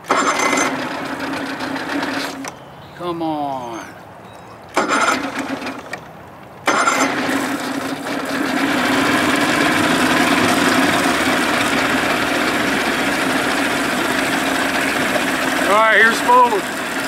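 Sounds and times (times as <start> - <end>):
outboard motor idling: 0.0 - 2.6, 6.7 - 17.0.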